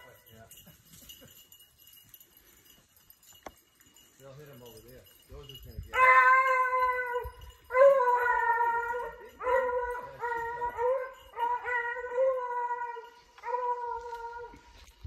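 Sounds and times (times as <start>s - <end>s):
hounds baying: 5.9s - 14.8s.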